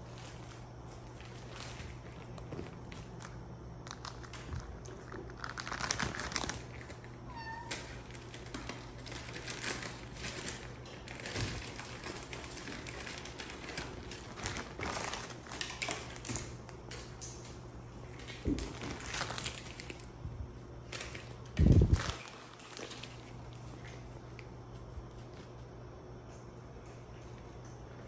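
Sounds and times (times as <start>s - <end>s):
animals scuffling on tiled floor: 0.0s - 20.1s, 20.9s - 28.0s
cat meowing: 7.3s - 7.9s.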